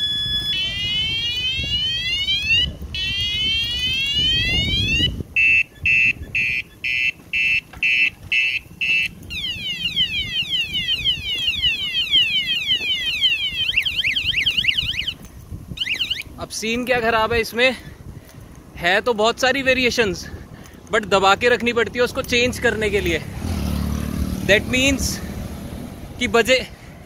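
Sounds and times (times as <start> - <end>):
electronic bicycle horn siren: 0.0 - 16.4.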